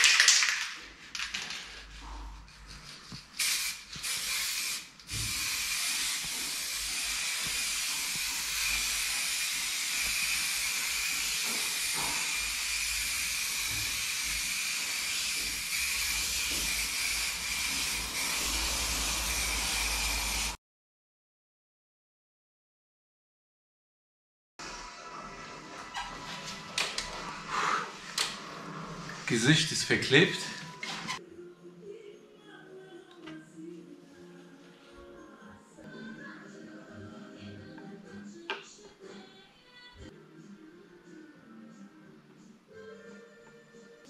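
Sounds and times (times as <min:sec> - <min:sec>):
aerosol spray can hissing: 0:03.1 - 0:20.6.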